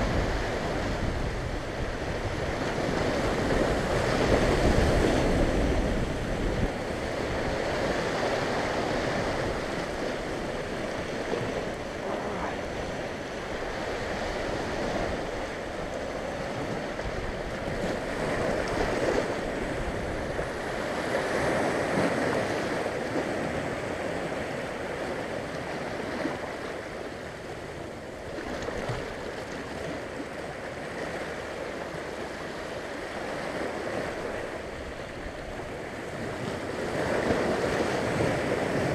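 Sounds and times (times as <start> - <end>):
sea waves washing over rocks: 0.0 - 38.9.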